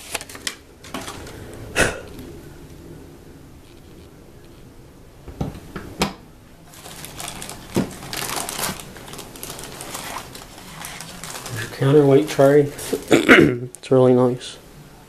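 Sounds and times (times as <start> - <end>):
plastic wrapping crinkling: 0.0 - 2.3, 6.6 - 13.3.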